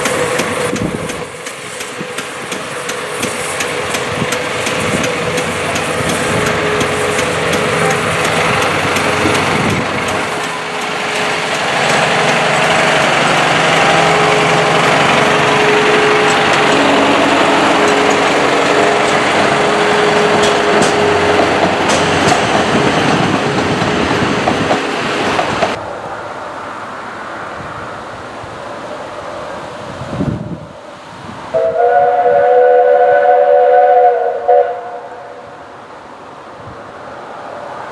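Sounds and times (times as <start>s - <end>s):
wheels clicking over track: 0.0s - 25.8s
wind noise: 0.0s - 26.2s, 27.2s - 32.4s
diesel locomotive engine: 0.0s - 37.9s.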